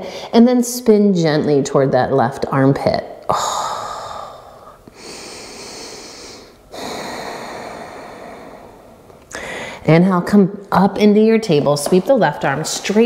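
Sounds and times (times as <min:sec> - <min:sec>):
woman breathing deeply: 0:03.3 - 0:09.9.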